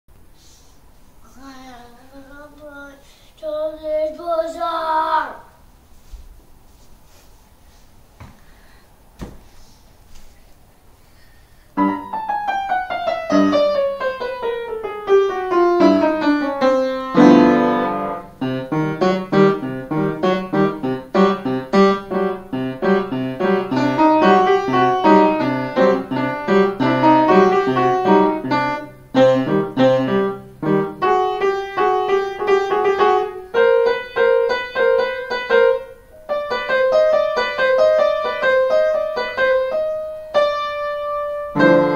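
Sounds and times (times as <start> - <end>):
child playing upright piano: 11.8 - 41.9.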